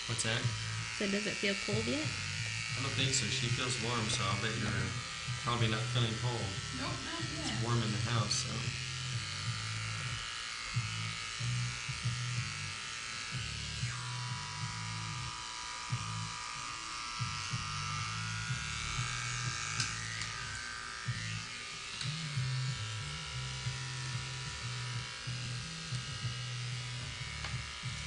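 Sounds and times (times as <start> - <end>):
electric hair clippers buzzing: 0.0 - 28.0.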